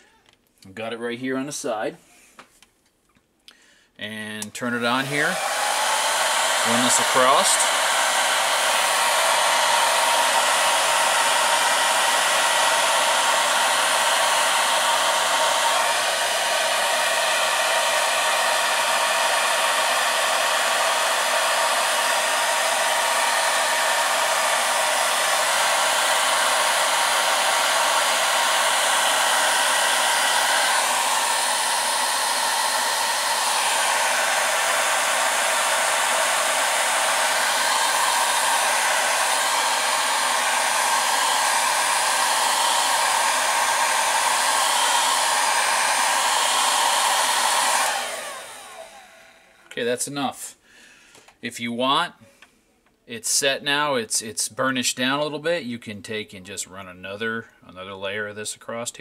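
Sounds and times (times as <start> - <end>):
hair dryer running: 4.5 - 49.8.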